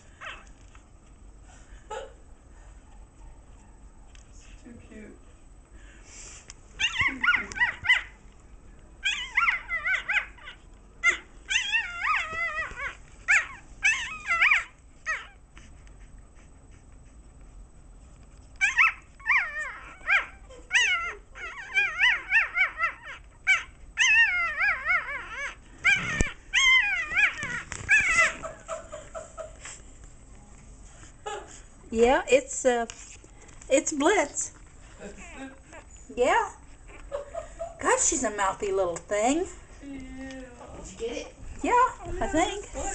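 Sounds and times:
puppy squealing and whining: 6.8 - 8.2, 9.0 - 15.4, 18.6 - 28.8.

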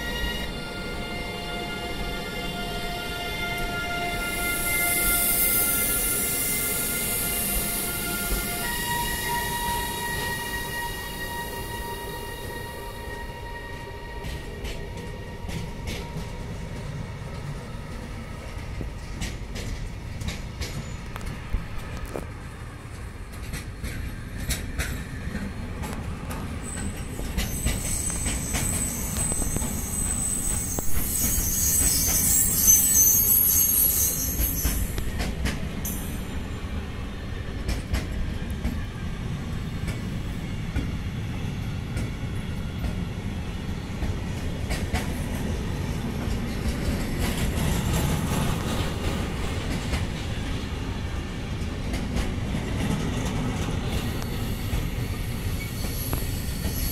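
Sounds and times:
high-pitched wheel squeal: 0.0 - 2.7, 3.3 - 14.4, 26.7 - 35.2, 54.0 - 56.9
train wheels rumbling on rails: 0.0 - 56.9
rail joint clicks: 14.0 - 56.9.

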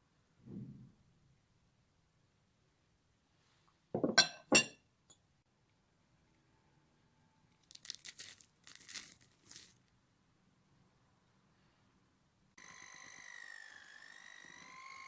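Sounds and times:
pieces pattering into glass bowl: 7.6 - 9.8.

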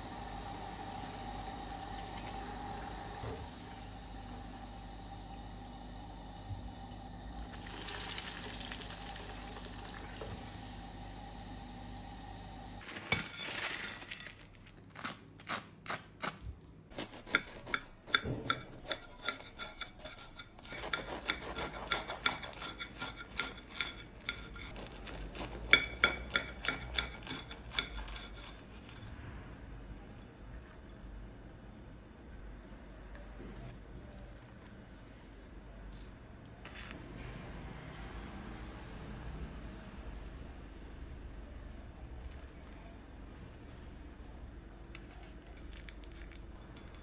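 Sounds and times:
hot oil sizzling: 4.7 - 14.0
knife crunching through crispy crust: 12.8 - 17.8.

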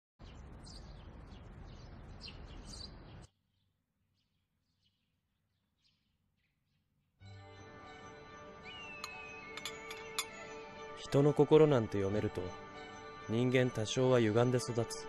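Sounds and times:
birds chirping: 0.2 - 15.0
music: 7.2 - 15.0.

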